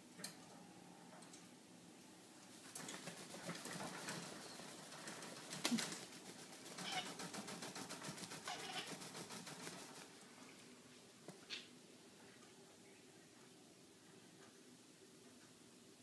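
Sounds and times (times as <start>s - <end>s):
parrot wings fluttering: 2.5s - 10.3s.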